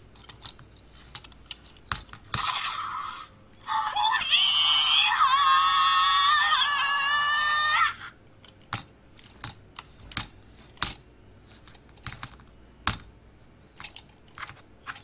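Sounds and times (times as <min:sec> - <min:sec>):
toy electronic sound effect: 0:02.4 - 0:05.6
plastic joints clicking: 0:13.8 - 0:15.0.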